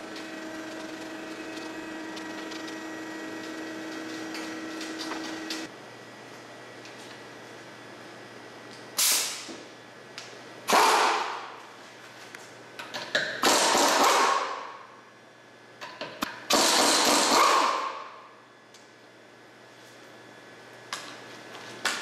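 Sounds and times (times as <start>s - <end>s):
pneumatic impact wrench: 9.0s - 9.5s, 10.7s - 11.5s, 13.2s - 14.7s, 16.5s - 18.2s.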